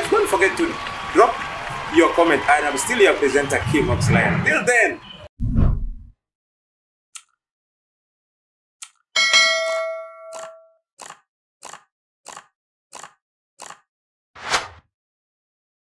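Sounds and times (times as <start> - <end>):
bright bell ding: 9.2 - 10.8.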